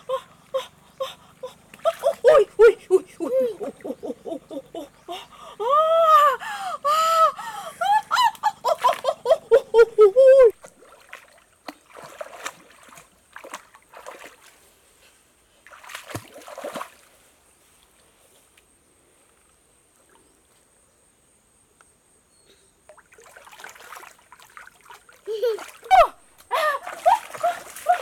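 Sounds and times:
shallow water splashing: 0.0s - 4.2s, 10.6s - 14.7s, 15.6s - 17.2s, 22.9s - 28.0s.

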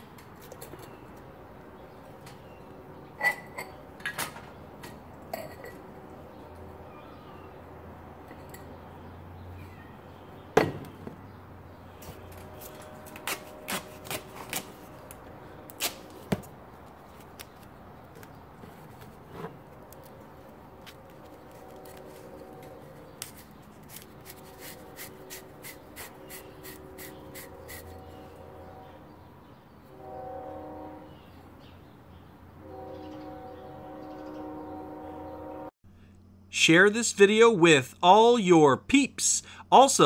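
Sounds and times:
duct tape being wrapped: 12.3s - 16.2s, 23.2s - 27.9s.

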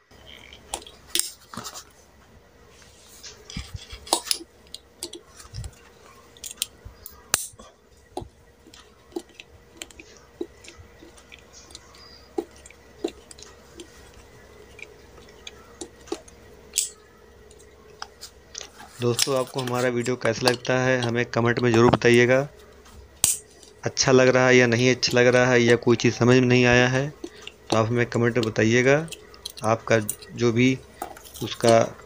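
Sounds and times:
screwdriver clicking and scraping metal: 3.4s - 5.8s, 6.4s - 7.6s, 17.6s - 22.2s, 27.2s - 30.4s.

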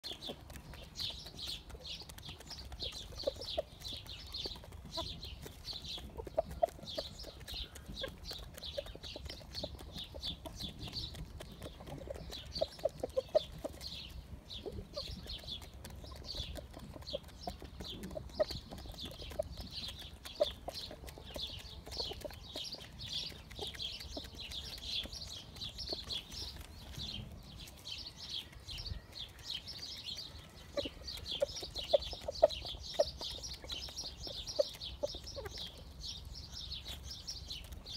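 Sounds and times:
sharp pecking taps: 0.0s - 13.8s, 15.0s - 26.7s
chickens clucking softly: 0.0s - 37.9s.

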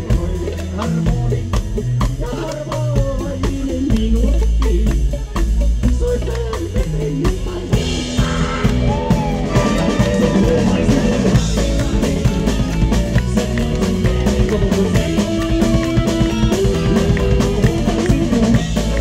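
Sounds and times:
bass guitar: 0.0s - 19.0s
drum kit beat: 0.0s - 19.0s
electric guitar: 0.0s - 19.0s
man singing: 0.0s - 19.0s.

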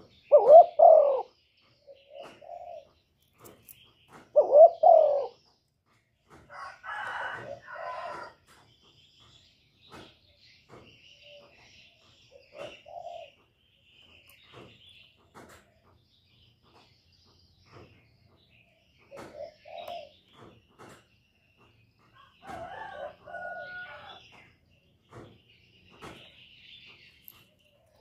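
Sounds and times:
dove cooing: 0.0s - 3.0s, 4.3s - 5.4s, 12.3s - 13.4s, 19.1s - 20.2s
small birds chirping: 0.0s - 28.0s.

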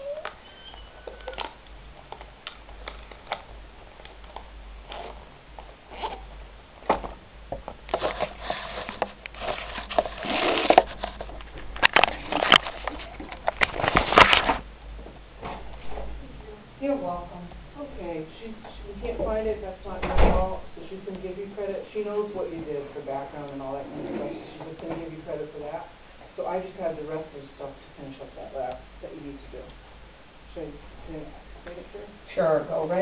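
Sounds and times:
camera rubbing on fabric: 8.0s - 11.4s.

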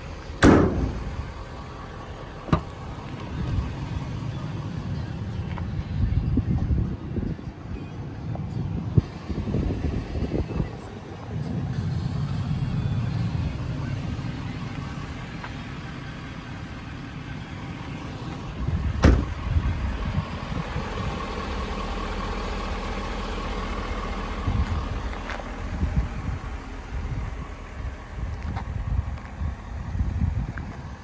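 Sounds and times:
diesel engine idling: 0.0s - 31.0s
sharp thump: 0.4s - 1.2s, 19.0s - 19.3s.

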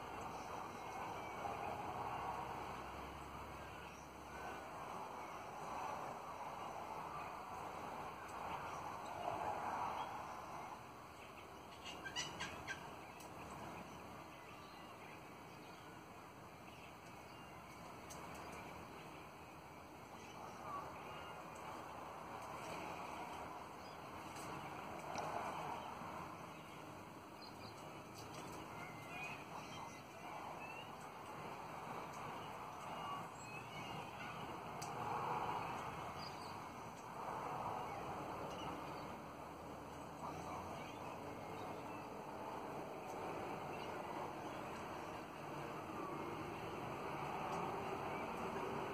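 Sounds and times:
parrots chattering and calling: 11.8s - 12.9s.

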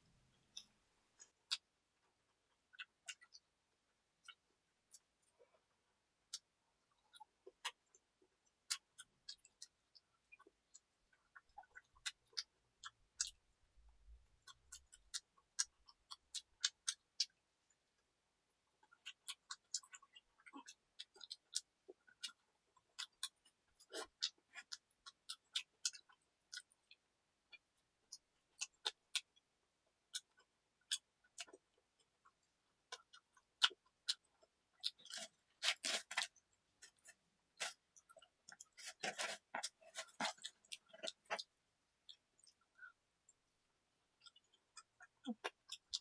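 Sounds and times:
chewing pizza: 18.7s - 43.4s, 44.1s - 46.0s.

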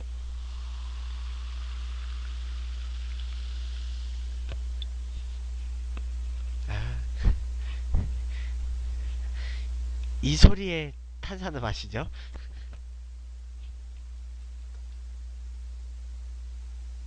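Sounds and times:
carbonation hiss: 0.0s - 5.0s
low electrical hum: 0.0s - 17.0s.

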